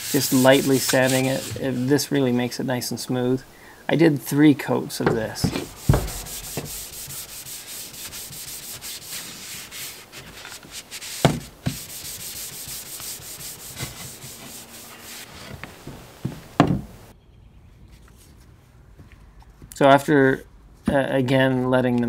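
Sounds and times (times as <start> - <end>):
sandpaper rubbing on wood: 0.0 - 2.1, 5.3 - 15.9
sharp knocks: 5.0 - 7.3.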